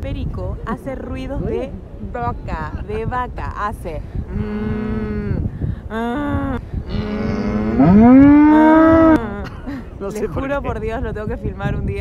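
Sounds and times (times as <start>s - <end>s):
cow mooing: 4.3s - 5.4s, 6.9s - 9.3s.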